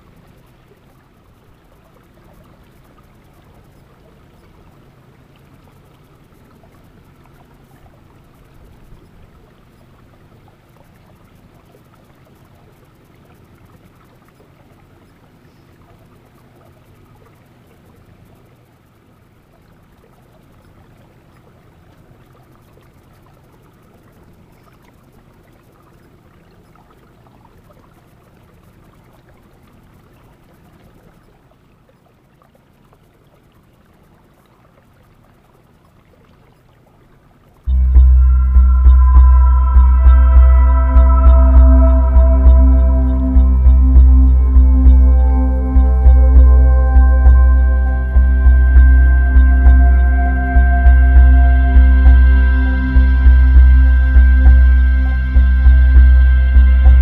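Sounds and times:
boat motor running: 37.7 - 57.0.

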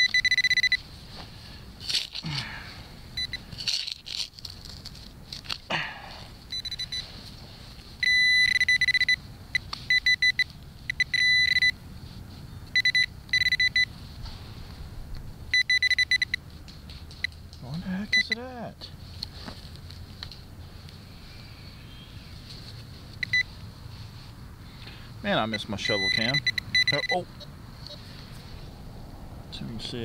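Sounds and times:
metal detector beeping: 0.0 - 0.8, 3.2 - 3.4, 6.5 - 7.1, 8.0 - 11.8, 12.6 - 13.9, 15.5 - 16.4, 18.0 - 18.4, 23.2 - 23.6, 25.3 - 28.1.

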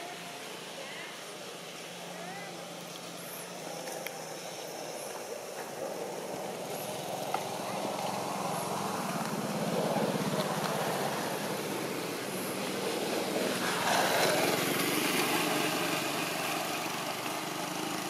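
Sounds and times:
motor engine running: 0.0 - 18.0.

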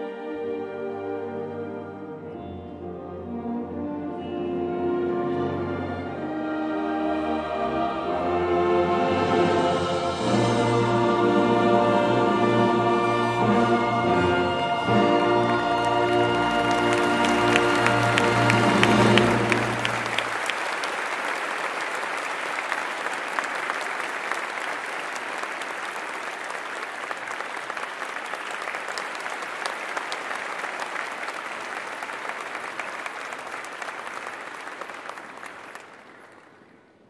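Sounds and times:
choir and orchestra chord: 0.0 - 20.4
audience applauding: 14.9 - 36.6.

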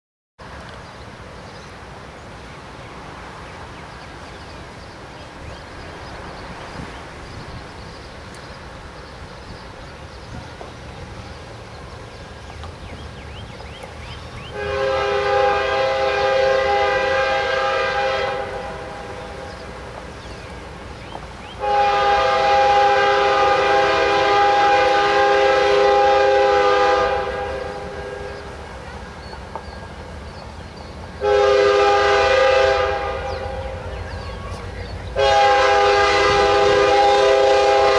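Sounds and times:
locomotive air horn blasts: 14.5 - 19.5, 21.6 - 28.5, 31.2 - 33.9, 35.2 - 37.9.

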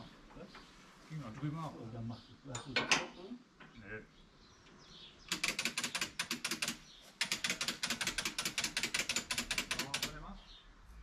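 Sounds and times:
hand ratchet clicking: 5.3 - 10.2.

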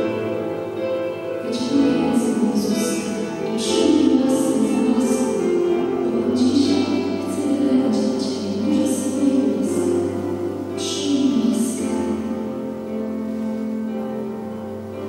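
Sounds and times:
instrumental accompaniment: 0.0 - 15.0.

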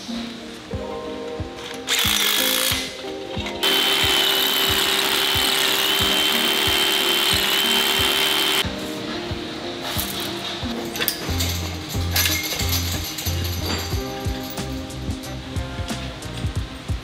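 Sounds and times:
background music with beat: 0.0 - 17.0
rotary hammer drill on concrete: 1.9 - 2.8, 3.6 - 8.6
power tool burst: 1.9 - 2.9, 3.6 - 8.6
shop vacuum whine: 3.6 - 8.6.

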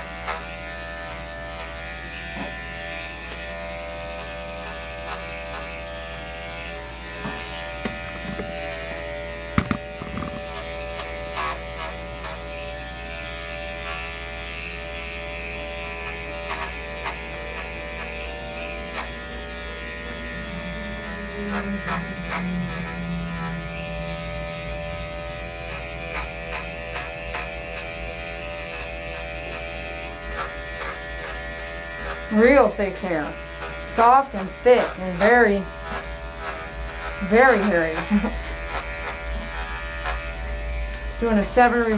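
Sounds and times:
electric clippers buzzing: 0.0 - 41.9
sharp clicks and knocks: 9.5 - 10.6.

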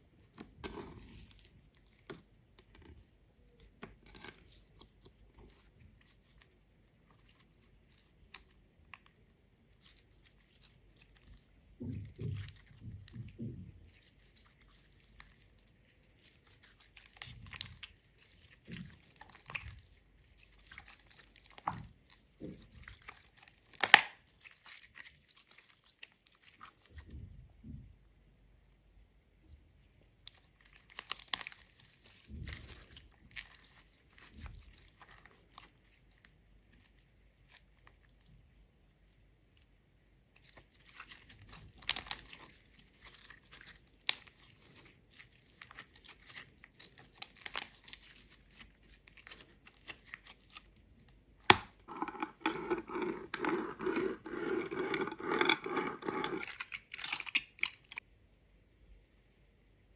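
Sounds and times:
slime crackling and popping: 14.0 - 26.5, 40.4 - 51.9
pizza cutter rolling over slime: 51.8 - 56.4.

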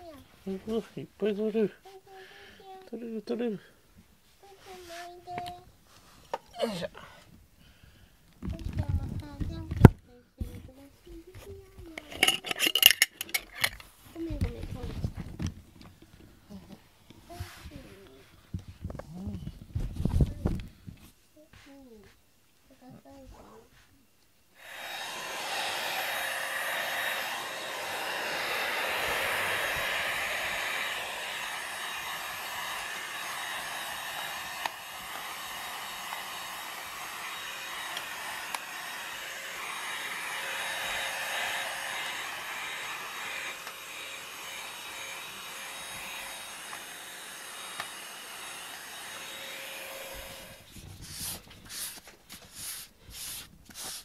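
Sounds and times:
stick vacuum cleaner humming: 24.6 - 50.7.

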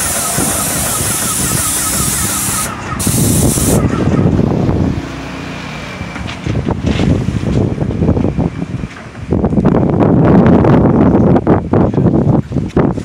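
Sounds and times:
paint sprayer hissing: 0.0 - 3.9
low rumbling wind noise: 0.0 - 13.0.

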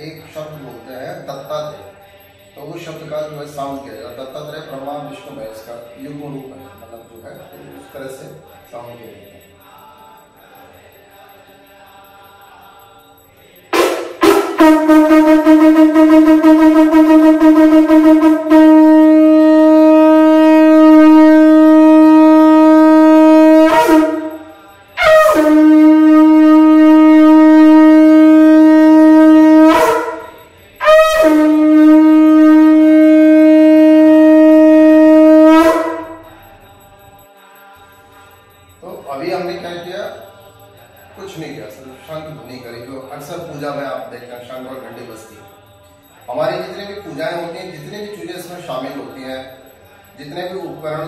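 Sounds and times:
conch shell blasts: 13.7 - 36.8.

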